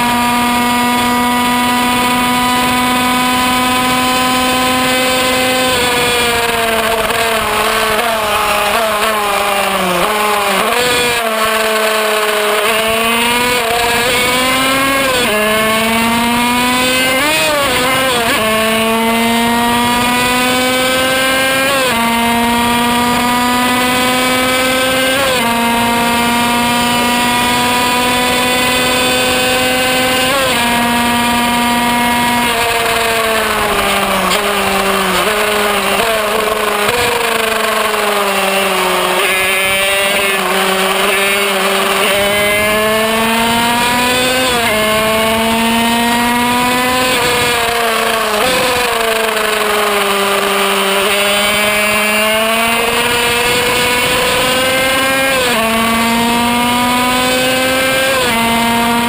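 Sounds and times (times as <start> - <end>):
racing motorcycle engine screaming: 0.0 - 59.0.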